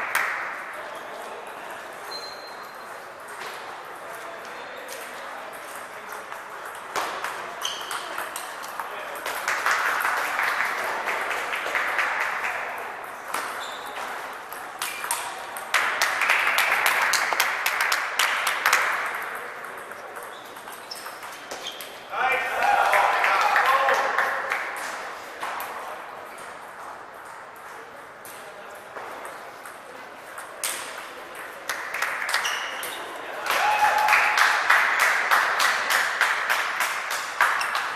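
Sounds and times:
hubbub of large hall: 0.0 - 37.9
brief squeak: 2.0 - 2.9, 7.6 - 8.1, 13.4 - 14.0, 20.3 - 21.9, 32.4 - 33.1
table tennis balls clicking: 5.0 - 12.4, 13.0 - 22.0.

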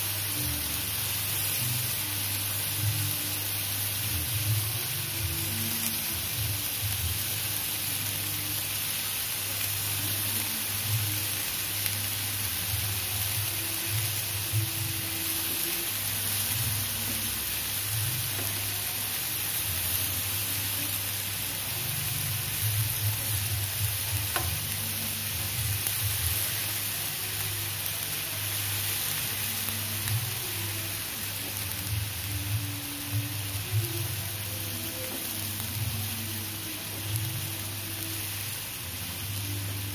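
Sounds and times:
skewers sizzling on grill pan: 0.0 - 39.9.

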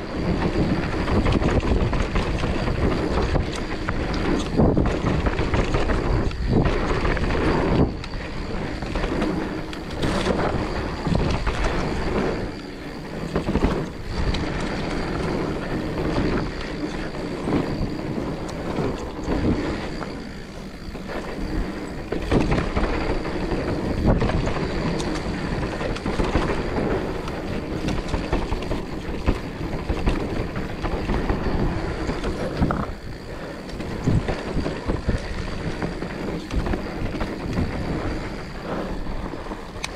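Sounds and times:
bike knocking and rattling: 0.0 - 39.9
bike tyres on dirt: 0.0 - 39.9.

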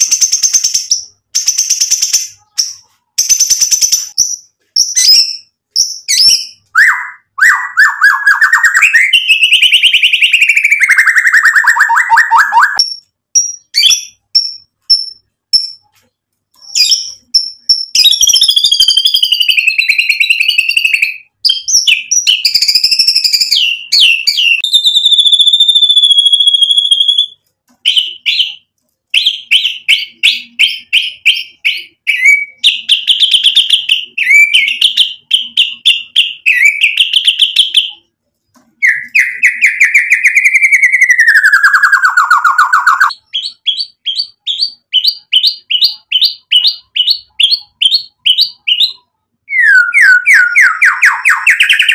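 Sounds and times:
songbird singing: 16.6 - 28.6, 38.8 - 51.9.

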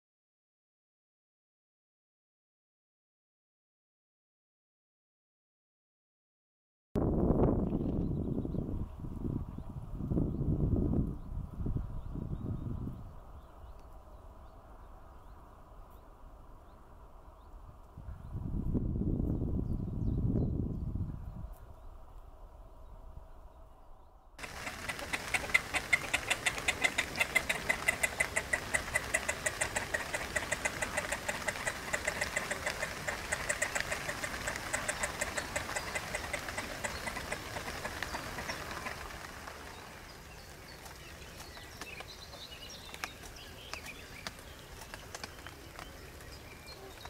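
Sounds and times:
bird calling rapid repeated notes: 24.4 - 39.8.

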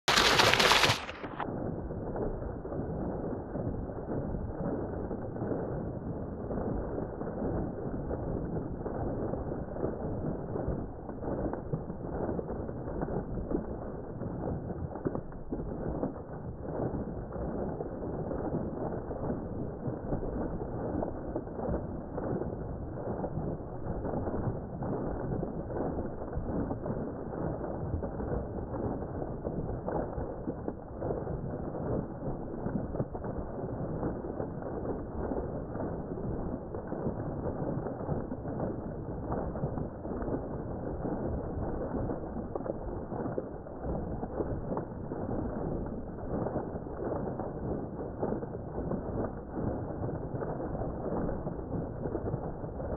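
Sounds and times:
water pouring into pond: 0.0 - 52.9.

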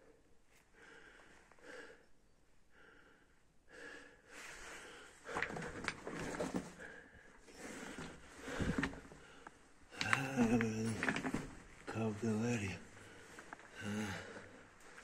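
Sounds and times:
person breathing hard: 0.6 - 2.1, 2.7 - 6.0, 6.6 - 10.5, 12.9 - 15.0.

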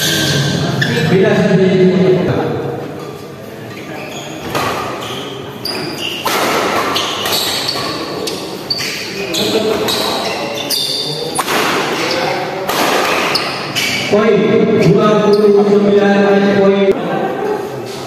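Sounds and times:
murmur of spectators: 0.0 - 18.0
shoes squeaking on court: 3.7 - 12.4, 13.0 - 14.2, 14.8 - 16.0
racket hitting shuttlecock: 5.7 - 8.4, 11.3 - 13.8.

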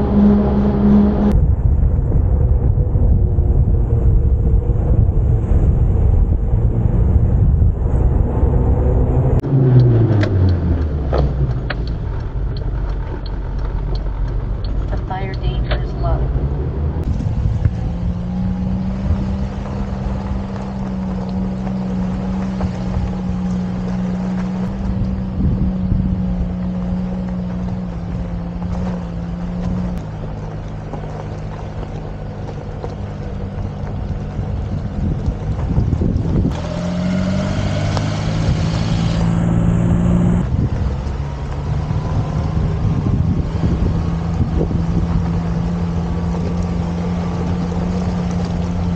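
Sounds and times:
wind on microphone: 0.0 - 9.4, 15.7 - 30.0, 33.5 - 48.9
van engine running: 0.0 - 48.9.

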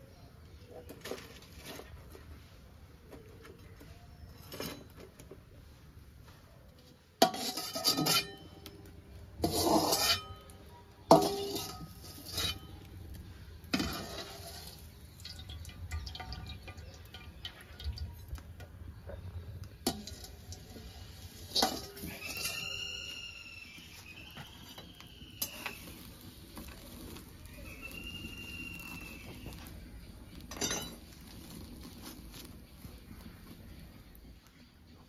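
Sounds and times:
utensils clinking against cookware: 7.2 - 12.8, 19.8 - 22.9, 30.4 - 31.5.

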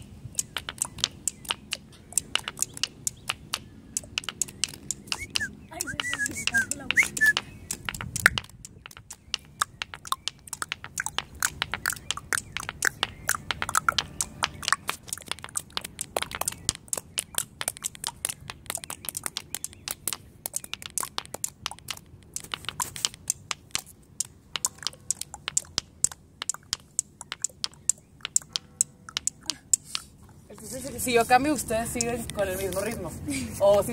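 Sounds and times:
objects tapping on stone floor: 0.4 - 33.0.

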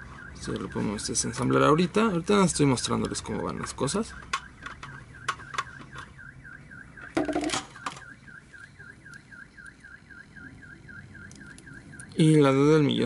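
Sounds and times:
sharp clicks of parts handled: 3.0 - 6.1, 7.0 - 8.1.

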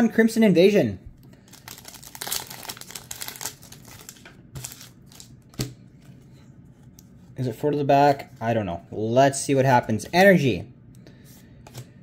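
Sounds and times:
foil wrapper crinkling: 1.4 - 5.4.

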